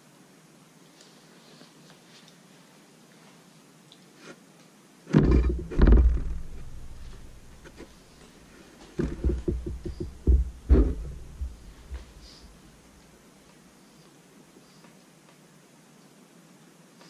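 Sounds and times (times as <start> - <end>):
heavy dull thumps: 5.1 - 8.0, 9.0 - 12.7
brush handle knocking on easel: 5.2 - 7.8, 9.0 - 12.2.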